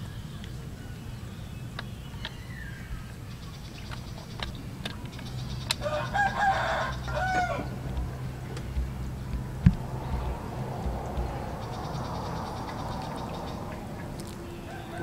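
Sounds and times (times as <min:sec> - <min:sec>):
rooster crowing: 0:05.8 - 0:08.3, 0:14.4 - 0:15.0.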